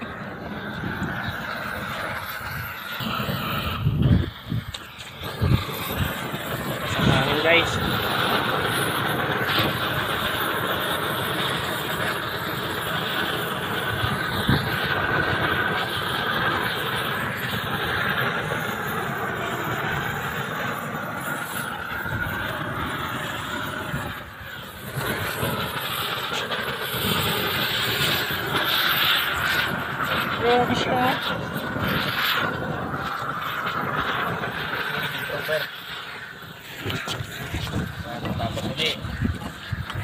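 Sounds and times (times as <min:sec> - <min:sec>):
gas torch flame rushing: 0:00.0 - 0:40.0.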